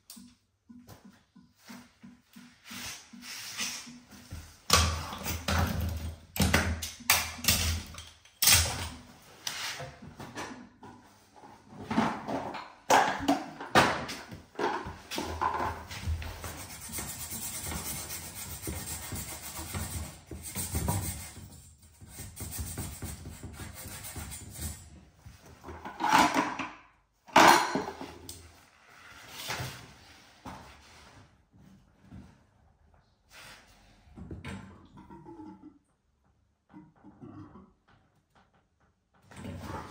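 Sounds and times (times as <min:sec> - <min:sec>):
metal pipes clicking and knocking: 0:00.0 - 0:09.0.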